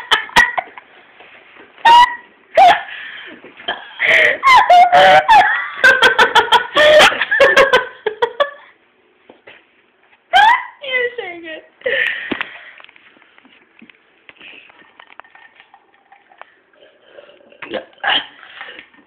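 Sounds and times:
girl laughing: 1.8s - 2.9s, 4.0s - 8.7s, 10.3s - 10.8s.

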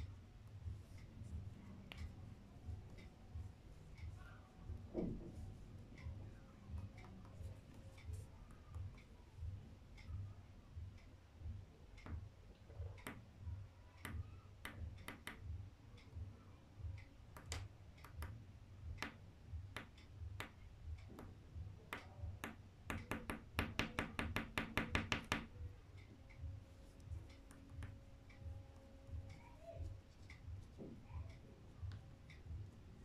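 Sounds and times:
light taps and clicks: 12.0s - 13.3s, 16.9s - 32.8s
rapid sharp taps: 17.3s - 25.6s.

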